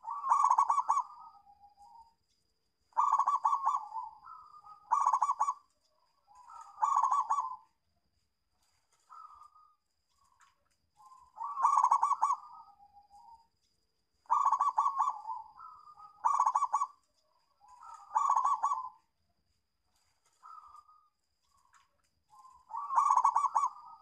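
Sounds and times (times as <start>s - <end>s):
dove cooing: 0.0s - 2.1s, 2.9s - 7.8s, 11.0s - 13.4s, 14.2s - 17.0s, 17.6s - 19.1s, 20.3s - 21.1s, 22.3s - 24.0s.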